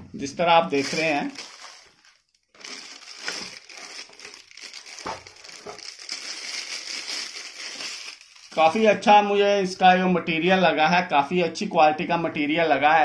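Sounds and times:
plastic wrapping crinkling: 0:00.6 - 0:09.0.

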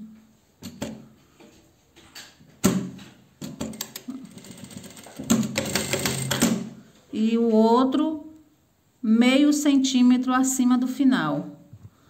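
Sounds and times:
sewing machine stitching: 0:03.6 - 0:06.7.

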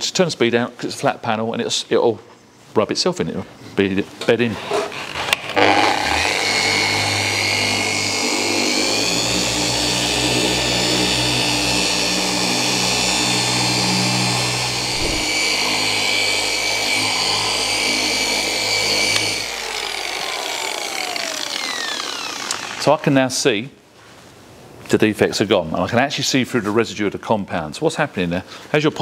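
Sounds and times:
electric polisher motor whine: 0:05.3 - 0:22.9.

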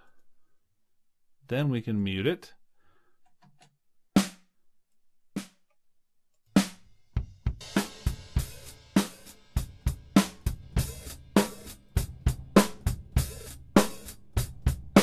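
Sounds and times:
drum kit playing steady beat: 0:04.2 - 0:04.4, 0:06.6 - 0:15.0.

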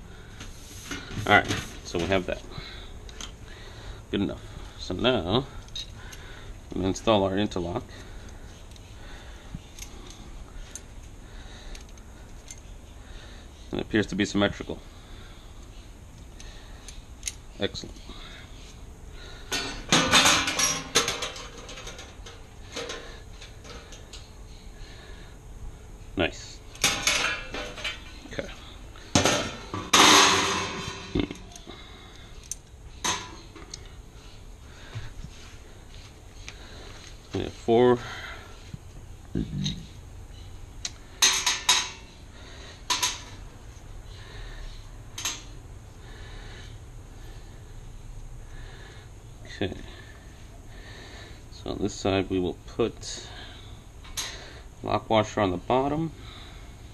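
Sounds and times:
faint breathing: 0:00.0 - 0:51.7, 0:53.0 - 0:54.8, 0:56.1 - 0:56.9
metal plates clattering: 0:19.5 - 0:23.8, 0:26.8 - 0:28.1, 0:29.2 - 0:31.3.

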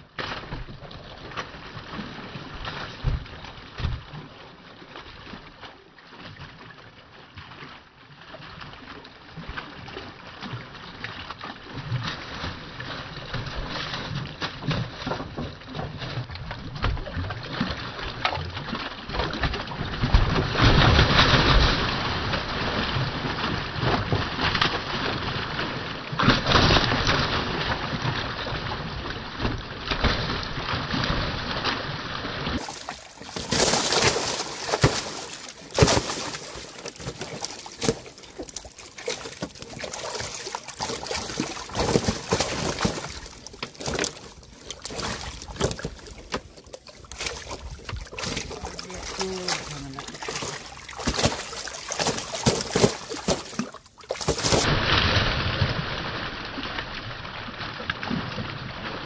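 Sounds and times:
fish splashing in water: 0:11.8 - 0:59.0.

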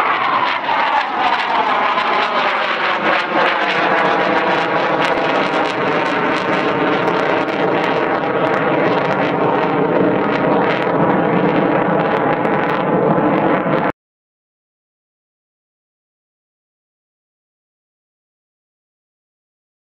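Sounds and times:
jet flying past: 0:00.0 - 0:13.9.

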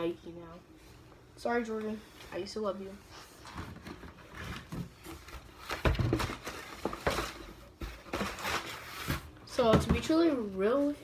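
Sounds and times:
rustling of shoes and box: 0:03.3 - 0:09.4.

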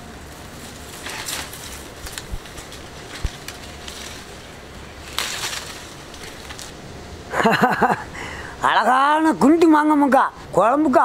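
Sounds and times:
leaves and branches rustling: 0:00.0 - 0:11.0
low steady rumble: 0:00.0 - 0:11.0
twig clicks: 0:00.3 - 0:06.8.

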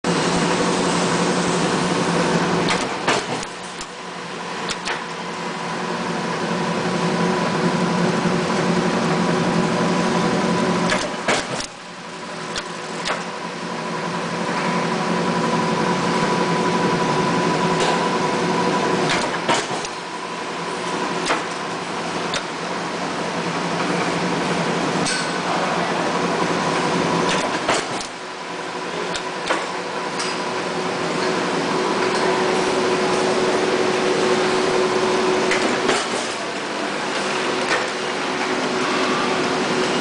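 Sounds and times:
sharp mechanical clicks: 0:04.6 - 0:05.1, 0:10.9 - 0:11.8, 0:12.5 - 0:13.3.

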